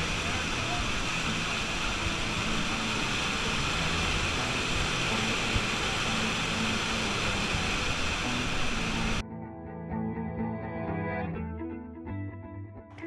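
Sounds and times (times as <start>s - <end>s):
waterfall rushing roar: 0.0s - 9.2s.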